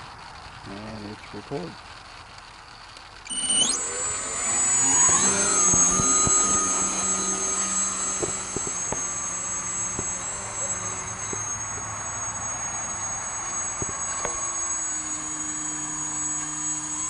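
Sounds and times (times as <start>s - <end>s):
electric motor and propeller whine: 0.0s - 17.0s.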